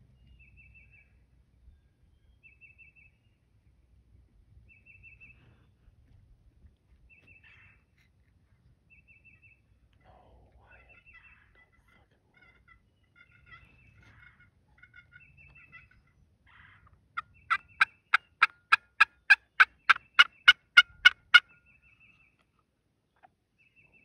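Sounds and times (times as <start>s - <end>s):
turkey yelps: 12.4s - 21.4s.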